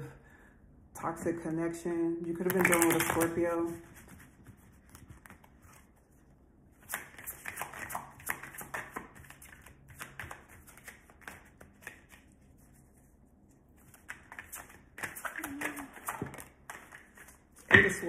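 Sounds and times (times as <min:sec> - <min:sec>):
cards being shuffled: 0:02.4 - 0:06.1, 0:06.8 - 0:12.8, 0:13.8 - 0:17.7.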